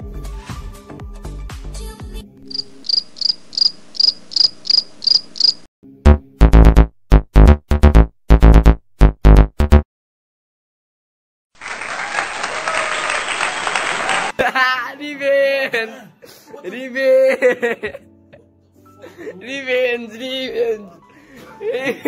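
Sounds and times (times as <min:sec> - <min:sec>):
cricket chirp sound effect: 0:02.5 - 0:05.7
music track: 0:05.8 - 0:09.8.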